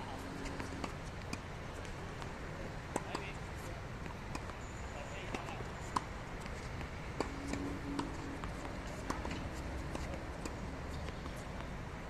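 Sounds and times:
balls bouncing on hard court: 0.0 - 11.8
steady background hum: 0.0 - 12.0
tennis rackets hitting balls: 0.0 - 12.0.

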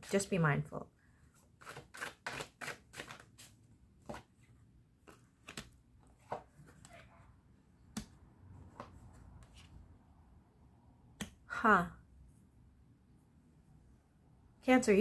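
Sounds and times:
cards being shuffled by hand: 1.5 - 4.4, 5.0 - 7.0.

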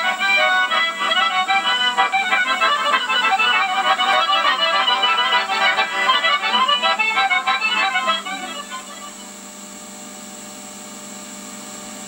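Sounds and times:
button accordion folk tune: 0.0 - 9.4.

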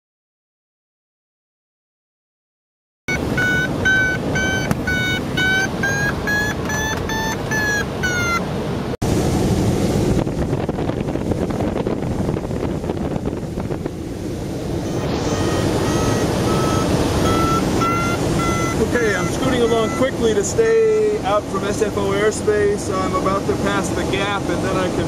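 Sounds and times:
variometer beeping: 3.1 - 8.8, 14.7 - 20.4
wind rushing over microphone: 9.0 - 25.0.

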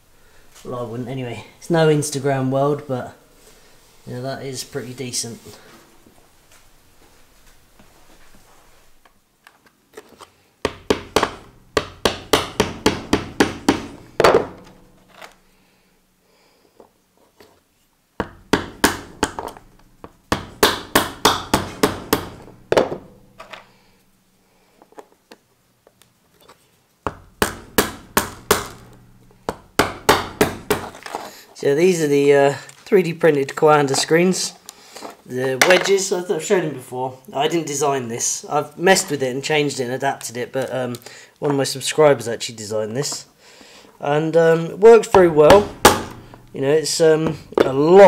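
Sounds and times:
hammer tapping plastic strips: 10.6 - 15.4, 18.2 - 23.7, 27.1 - 31.3, 45.0 - 48.0.

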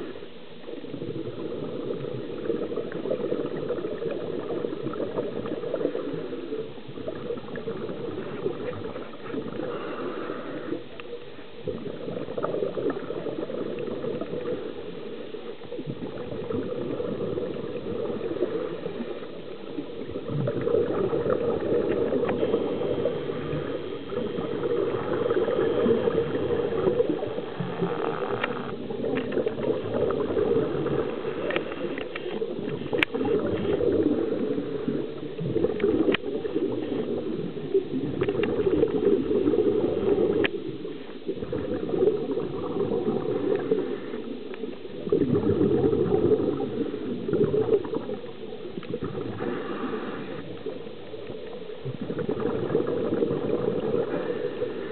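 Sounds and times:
underwater rushing and bubbling: 0.0 - 54.9
small clicks: 27.8 - 29.6, 31.4 - 33.7.

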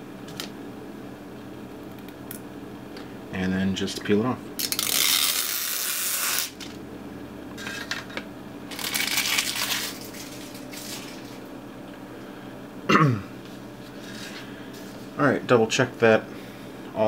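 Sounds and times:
plastic film peeling rustle: 8.7 - 11.4.

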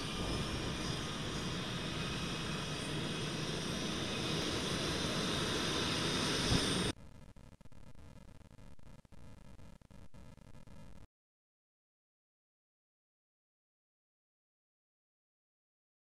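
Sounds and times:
jet engines rushing with whine: 0.0 - 7.0.

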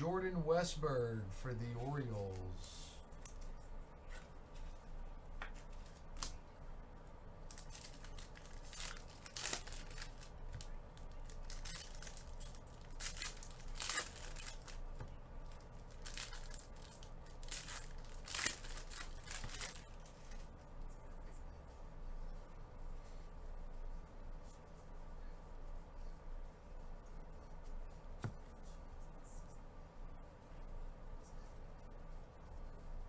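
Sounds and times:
foil wrappers tearing and crinkling: 7.5 - 20.2.

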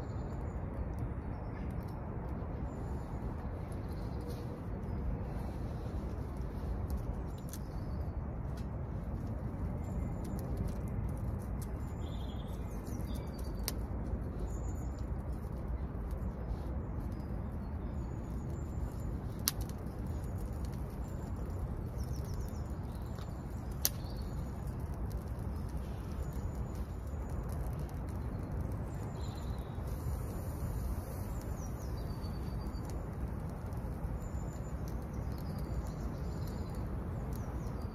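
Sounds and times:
small birds chirping: 0.0 - 37.9.

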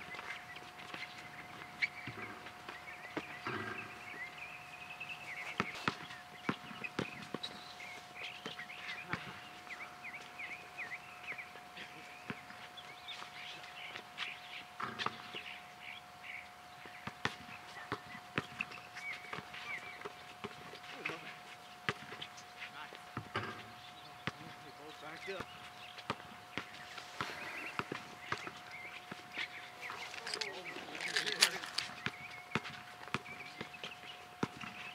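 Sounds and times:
players' footsteps: 17.1 - 34.9.

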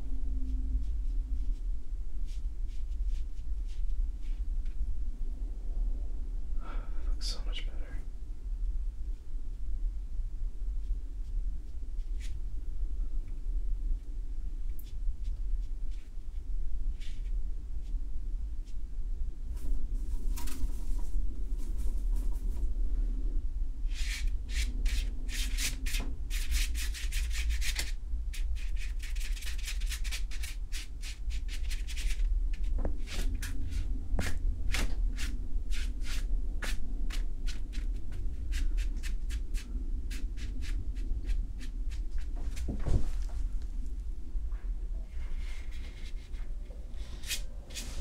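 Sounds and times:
brush scrubbing paper: 23.9 - 42.4.

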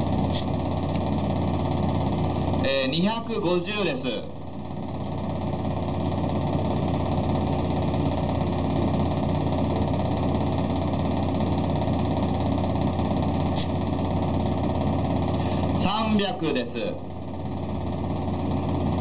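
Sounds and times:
low machine hum: 0.0 - 19.0
air hissing: 0.3 - 0.6, 13.5 - 13.8.

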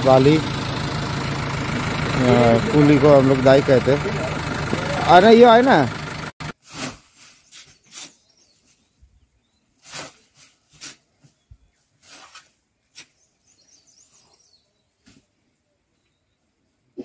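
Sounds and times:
sand scraping: 6.4 - 8.9, 9.8 - 11.1, 12.0 - 13.2
sacks rustling: 6.5 - 8.8, 9.8 - 11.1.

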